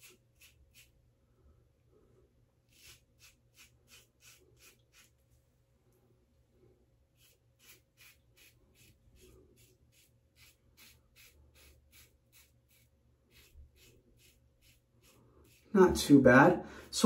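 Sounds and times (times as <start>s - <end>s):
razor scraping stubble: 0.0s - 1.0s, 2.7s - 5.2s, 7.2s - 15.7s.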